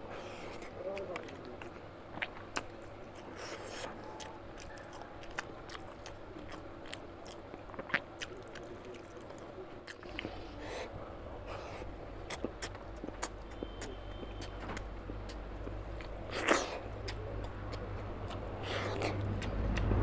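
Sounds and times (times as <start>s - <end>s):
man chewing wetly: 0.0s - 20.0s
mouth clicks: 12.2s - 19.9s.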